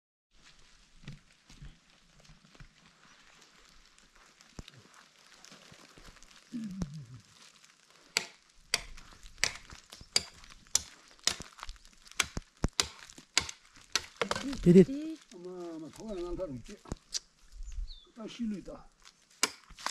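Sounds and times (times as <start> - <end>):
blade chopping into wooden pole: 19.4 - 19.9.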